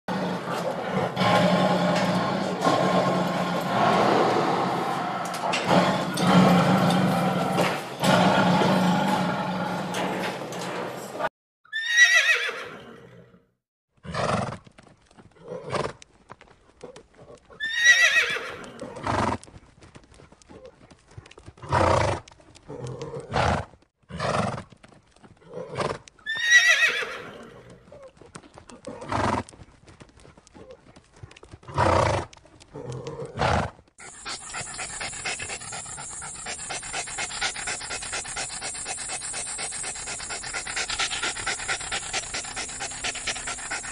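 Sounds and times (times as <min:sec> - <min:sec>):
horse whinnying: 0:11.7 - 0:13.3, 0:17.6 - 0:19.0, 0:25.7 - 0:27.7
dog panting fast: 0:34.0 - 0:43.9.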